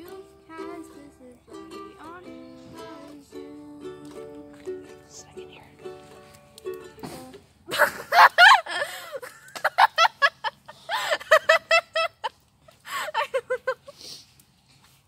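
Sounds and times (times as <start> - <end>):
girl laughing hard: 7.7 - 12.3, 12.9 - 14.0.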